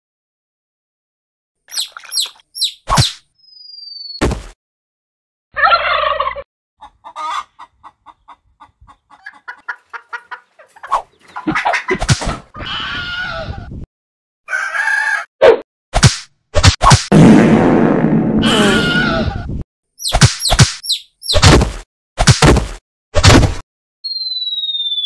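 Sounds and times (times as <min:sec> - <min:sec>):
turkey gobbling: 0:05.6 - 0:12.0
hen clucking: 0:05.6 - 0:13.4.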